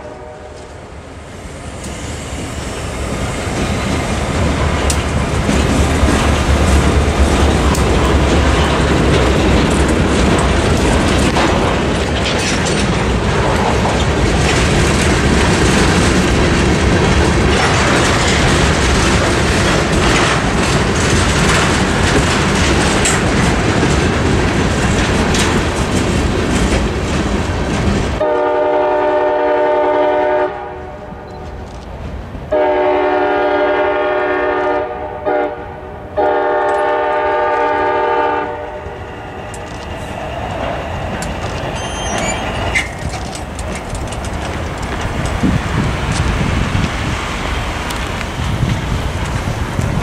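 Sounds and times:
locomotive air horn: 0.0 - 0.8, 28.2 - 31.2, 32.5 - 39.2
freight cars rolling: 0.1 - 29.9, 36.2 - 50.0.

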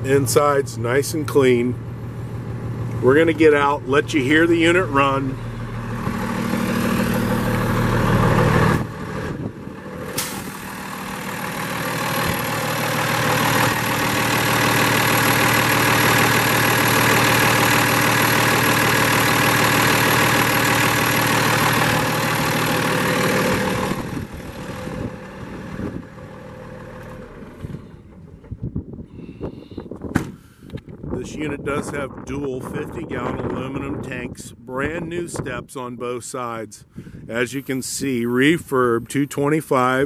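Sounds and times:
diesel engine idling: 0.0 - 28.7.

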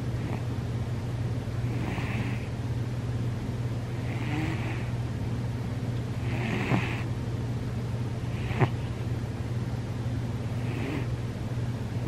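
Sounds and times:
steady low hum: 0.0 - 12.0
cat snoring: 1.6 - 2.5, 3.9 - 5.0, 6.2 - 7.1, 8.3 - 8.8, 10.6 - 11.1.

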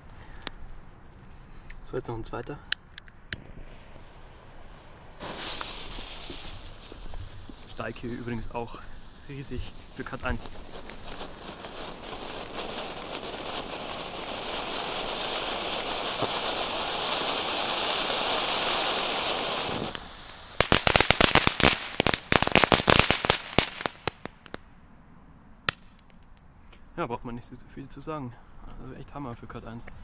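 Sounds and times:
firework crackling: 2.8 - 24.6
firework fountain hissing: 3.2 - 24.2.

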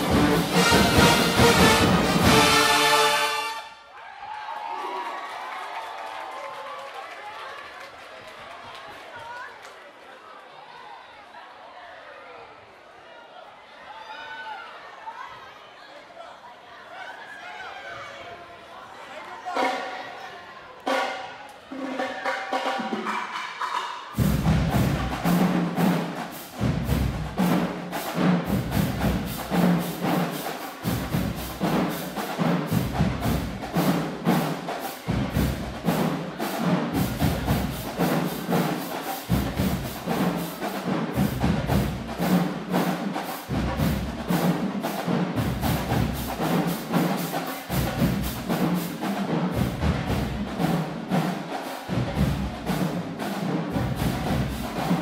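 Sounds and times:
drumline beat: 0.0 - 3.6, 19.6 - 20.0, 20.8 - 55.0
marching band playing: 0.0 - 3.8, 20.8 - 55.0.

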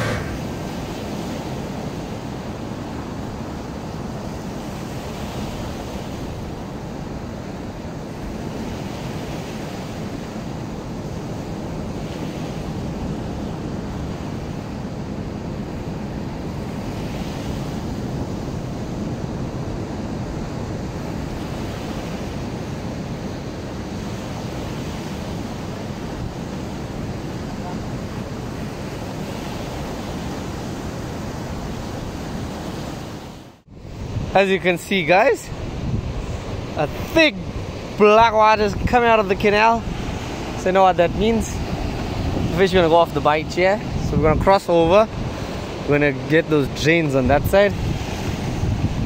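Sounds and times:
surf breaking on rocks: 0.0 - 1.4
wind rumbling on microphone: 0.0 - 49.0.

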